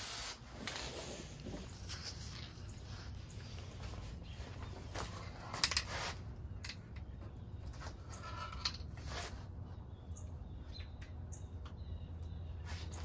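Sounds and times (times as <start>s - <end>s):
aerosol spray can hissing: 0.0s - 0.4s.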